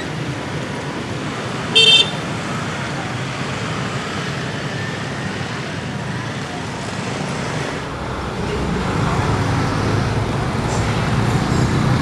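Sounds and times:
motorcycle and car engines: 0.0 - 12.0.

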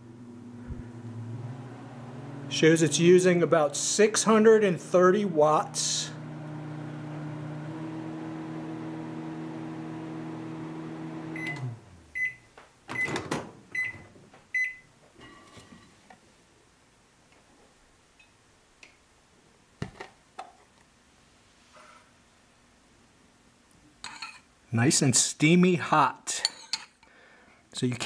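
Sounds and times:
microwave oven humming: 0.0 - 3.4, 4.9 - 12.4
microwave beeps: 11.3 - 14.9.

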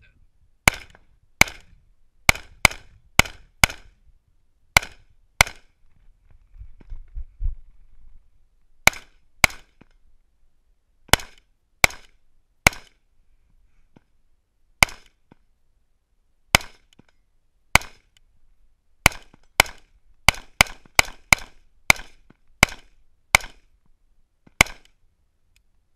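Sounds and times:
rifle shots: 0.6 - 1.7, 2.3 - 3.9, 4.8 - 5.7, 8.8 - 9.7, 17.7 - 18.1, 19.0 - 23.6, 24.6 - 24.9.

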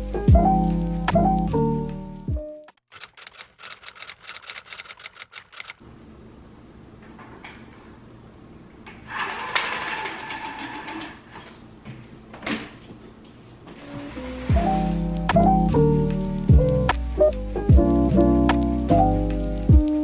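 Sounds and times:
typewriter key clicks: 2.9 - 5.8
window blinds rattling up: 9.1 - 11.6, 13.8 - 15.2.

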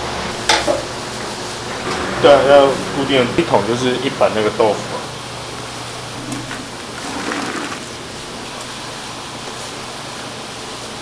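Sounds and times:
background hiss and hum: 0.0 - 11.0
metal scoop scooping: 6.2 - 8.0.

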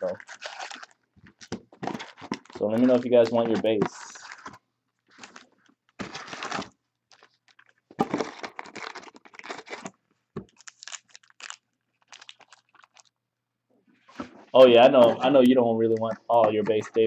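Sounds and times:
card pack wrappers ripping: 0.0 - 4.5, 5.1 - 9.9, 10.5 - 13.1.

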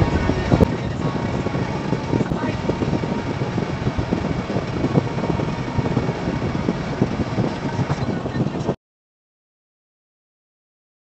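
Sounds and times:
vehicle road and engine noise: 0.0 - 8.8.

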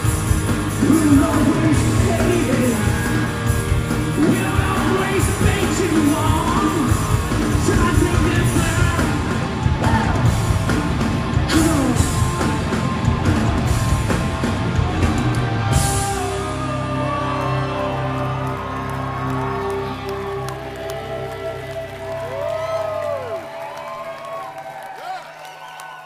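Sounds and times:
drumming: 0.0 - 16.7
live rock band playing: 0.0 - 22.0
person singing: 0.7 - 10.4, 11.4 - 12.6.

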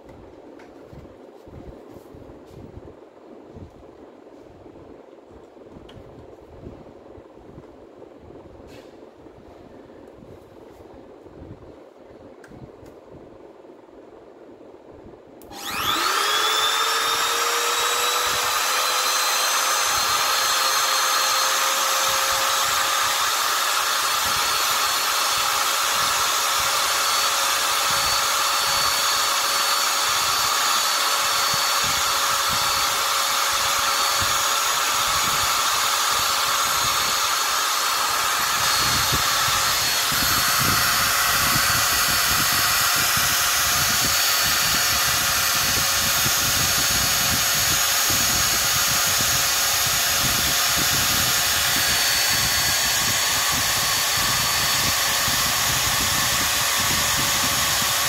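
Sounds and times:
electric trimmer motor whine: 15.4 - 58.0.

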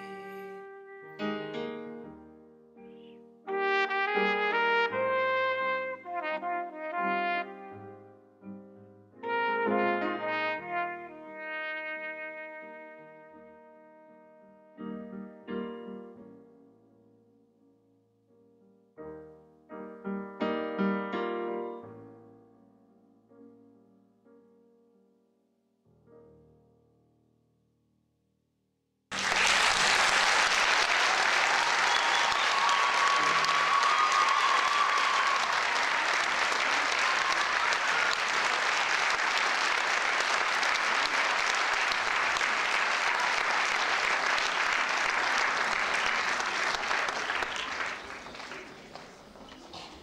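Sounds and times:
audience applauding: 29.1 - 50.0.

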